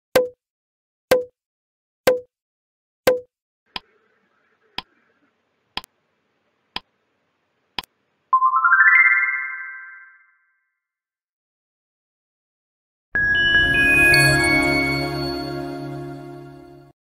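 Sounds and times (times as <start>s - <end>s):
countdown timer ticks: 0.2s - 0.4s, 1.1s - 1.3s, 2.1s - 2.3s
rising run of chime notes: 13.2s - 16.9s.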